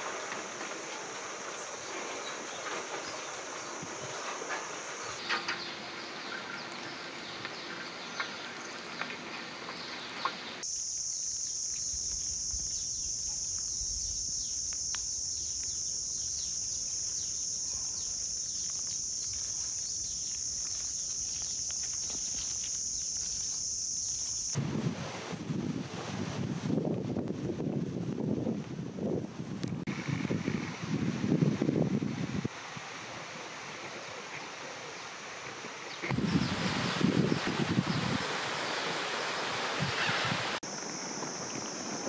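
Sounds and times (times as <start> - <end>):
high-pitched insect drone: 10.6 - 24.6.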